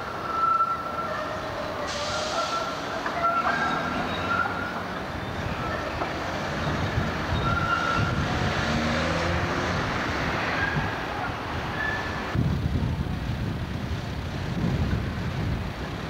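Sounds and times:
street traffic rumble: 0.0 - 16.0
faint high squeals: 0.1 - 1.4, 2.0 - 6.0.

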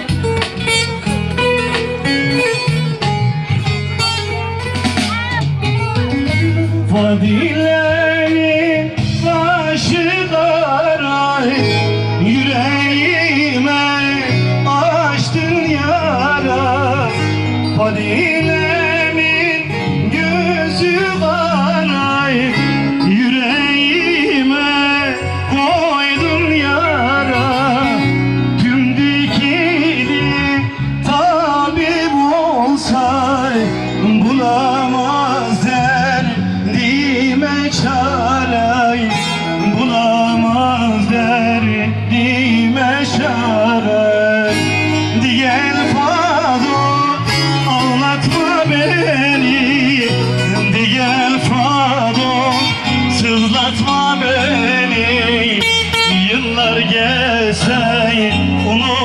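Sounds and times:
plucked strings: 0.0 - 59.0
person singing with ornamented voice: 5.0 - 59.0.

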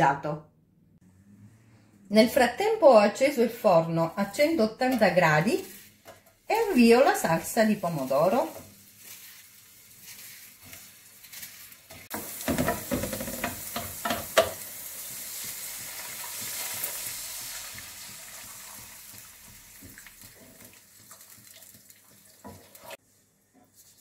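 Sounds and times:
wooden spoon stirring sauce: 4.9 - 14.4, 15.0 - 23.0
sauce sizzling in a frying pan: 6.6 - 23.0.

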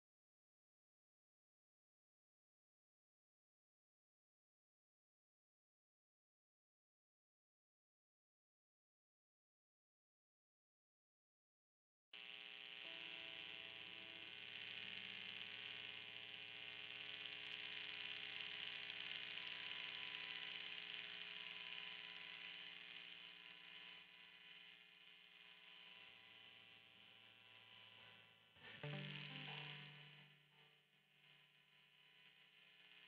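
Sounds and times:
guitar amplifier hum and hiss: 12.2 - 33.0.

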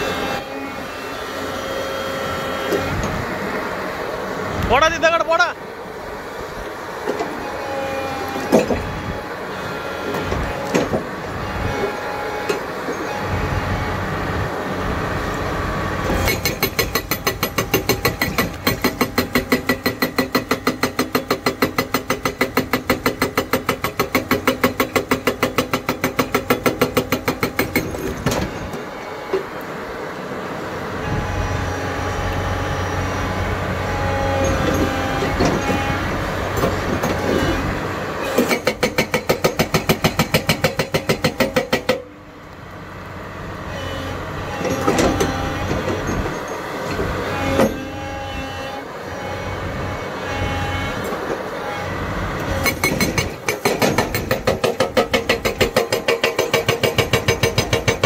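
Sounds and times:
excavator engine running: 0.0 - 58.0
hydraulic rock breaker hammering: 7.0 - 9.2, 9.8 - 13.3, 16.0 - 29.5, 33.8 - 42.2, 43.8 - 58.0.

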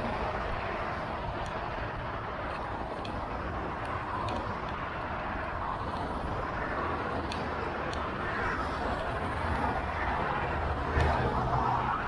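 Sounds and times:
city street traffic: 0.0 - 12.0
faint clicks: 7.2 - 8.1.

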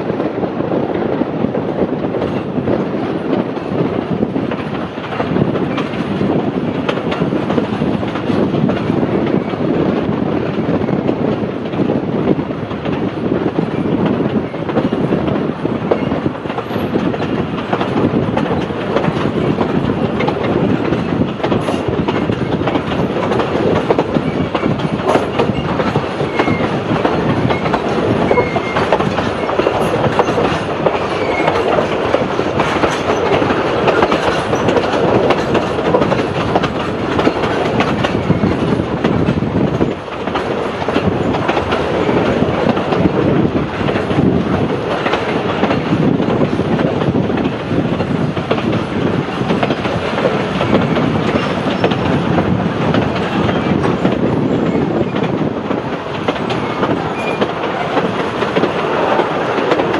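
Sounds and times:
train carriage rumble: 0.0 - 59.9
wheel clatter over rails: 12.8 - 59.9.

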